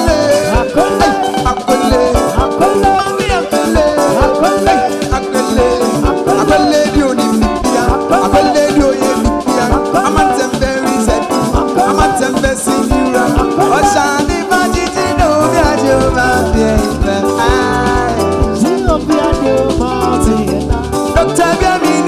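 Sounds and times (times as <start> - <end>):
drum kit: 0.0 - 22.0
electric bass: 0.0 - 22.0
electric guitar bending notes: 0.0 - 22.0
keyboards: 0.0 - 22.0.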